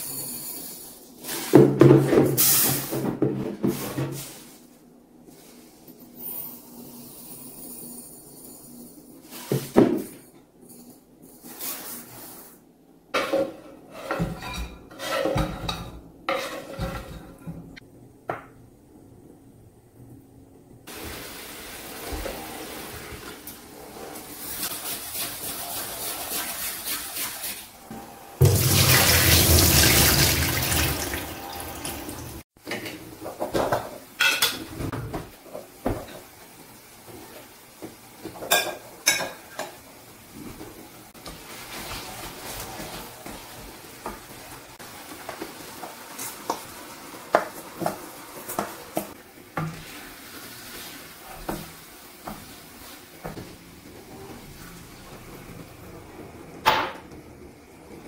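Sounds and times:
tap water running into sink: 28.4s - 32.4s.

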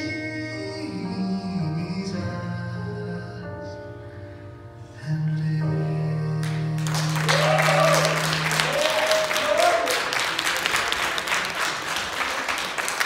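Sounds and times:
crowd applauding: 6.5s - 13.0s.

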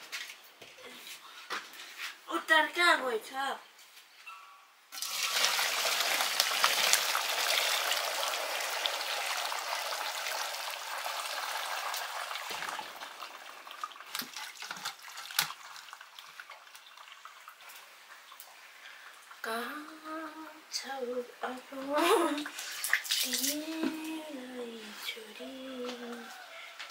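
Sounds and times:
water splashing and draining: 4.9s - 19.5s, 22.3s - 24.0s.

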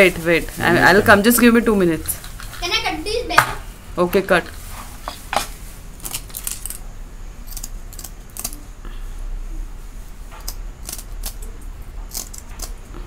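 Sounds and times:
scissors snipping: 7.5s - 8.6s, 10.4s - 12.9s.

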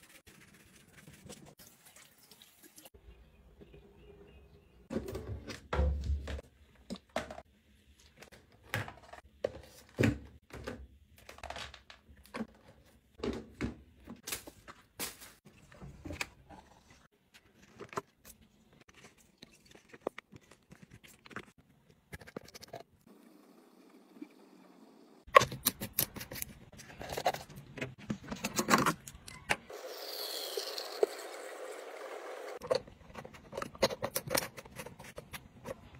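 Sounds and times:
plastic box and bottle handled: 4.9s - 22.8s, 32.6s - 35.9s.

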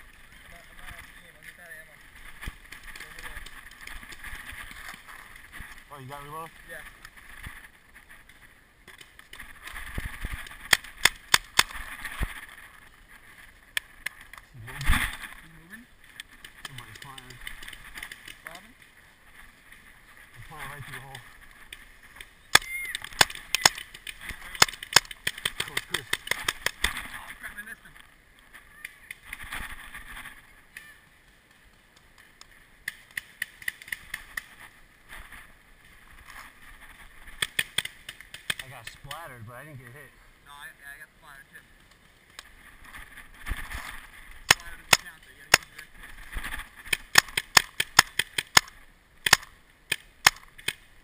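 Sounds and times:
paintball marker shots: 10.4s - 11.8s, 22.2s - 27.1s, 44.4s - 45.9s, 46.8s - 50.8s.

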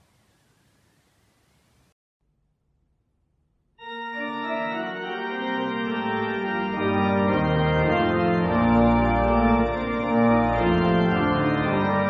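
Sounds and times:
church organ playing chords: 3.8s - 12.0s.

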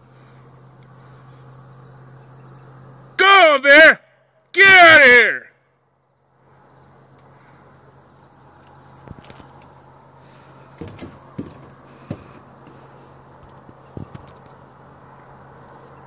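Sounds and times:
steady low hum: 0.0s - 3.2s.

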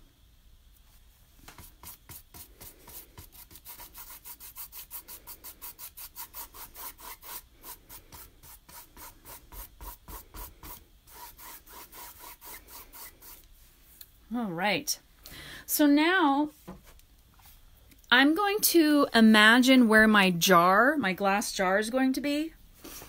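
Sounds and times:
paintbrush scrubbing on canvas: 1.5s - 13.6s.

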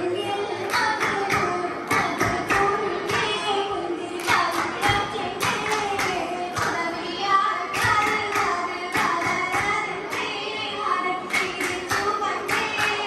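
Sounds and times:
girls singing in chorus: 0.0s - 13.0s
group hand-clapping: 0.6s - 3.4s, 4.2s - 7.0s, 7.7s - 10.5s, 11.2s - 13.0s.

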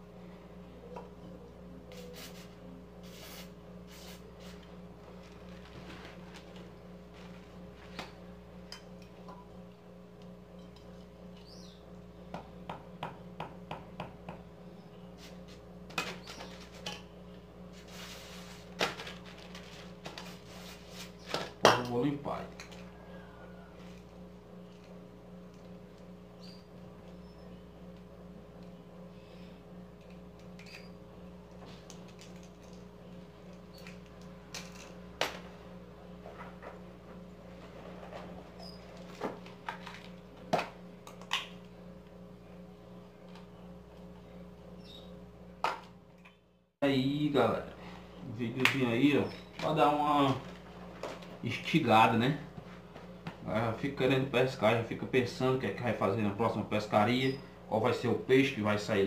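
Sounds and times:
aerosol can hiss: 1.9s - 4.6s.

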